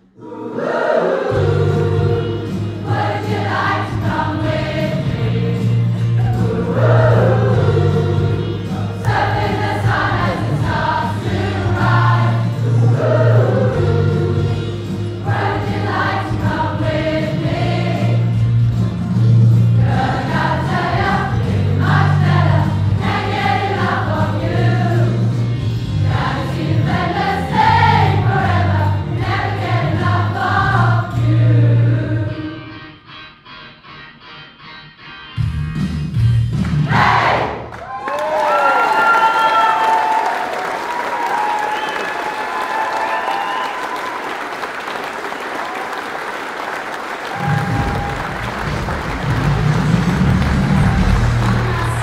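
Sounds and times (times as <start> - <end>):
choir singing a soul-pop song: 0.1 - 32.7, 36.8 - 37.6.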